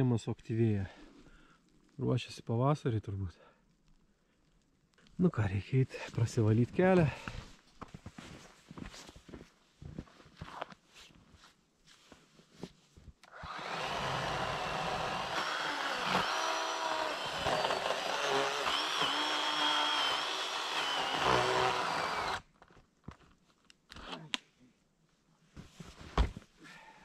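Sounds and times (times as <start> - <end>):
footsteps crunching in snow: 7.2 - 12.3
chainsaw cutting wood: 13.3 - 22.5.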